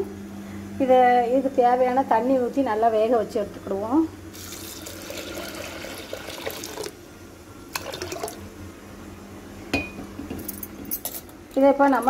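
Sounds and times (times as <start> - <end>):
water pouring into a pot: 4.3 - 7.0, 7.7 - 8.4.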